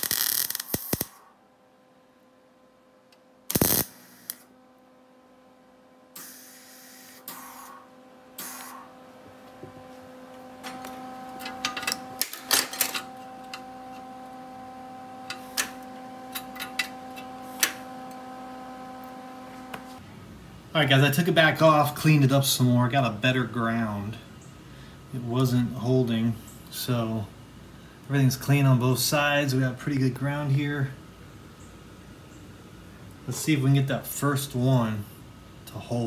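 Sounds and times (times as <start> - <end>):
mig welding burst: 0.0 - 1.2, 3.5 - 4.5, 6.1 - 7.8, 8.4 - 8.9
electrical hum: 0.0 - 36.0.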